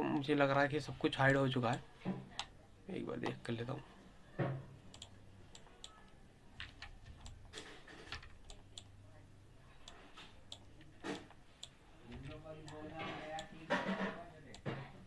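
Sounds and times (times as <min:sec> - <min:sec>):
computer mouse and keyboard clicks: 0:04.9 - 0:08.9.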